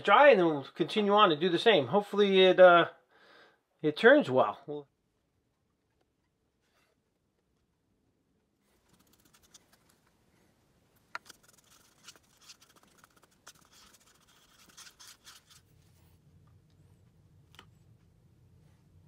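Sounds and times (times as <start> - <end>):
low steady hum: 4.8 - 19.0
stirrer scraping plastic cup: 8.8 - 10.0, 11.2 - 15.7.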